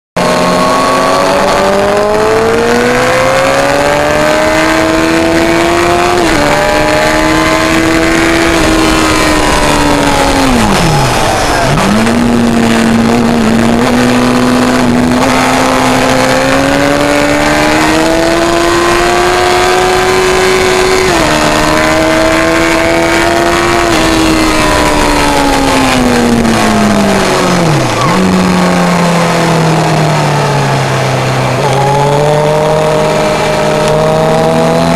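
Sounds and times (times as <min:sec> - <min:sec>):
motorcycle engine revving: 0:00.2 - 0:34.9.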